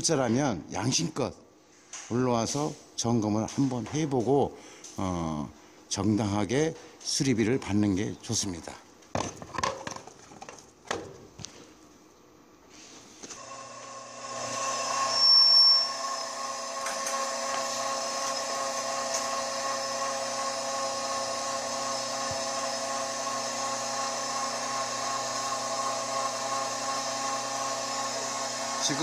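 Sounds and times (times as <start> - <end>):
roller shutter motor humming: 15.8 - 29.0.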